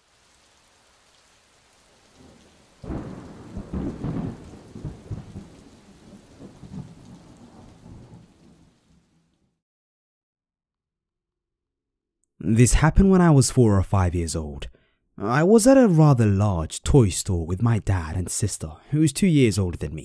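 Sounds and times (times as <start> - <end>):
steady rain falling: 0.0 - 9.6
rolling thunder: 2.1 - 9.1.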